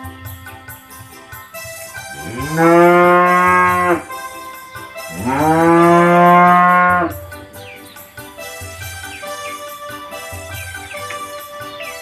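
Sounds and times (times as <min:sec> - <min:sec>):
cow mooing: 0:02.2 - 0:04.1, 0:05.1 - 0:07.2.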